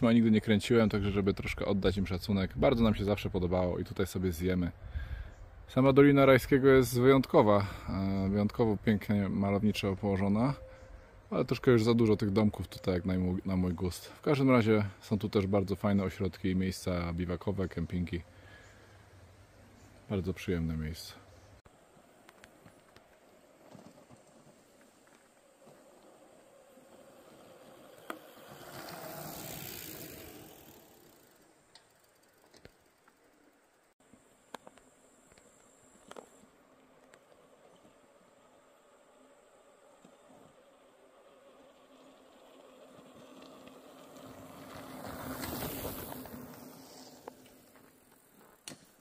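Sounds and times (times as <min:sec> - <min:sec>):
bicycle tyres crunching on dirt: 0:21.7 - 0:49.0.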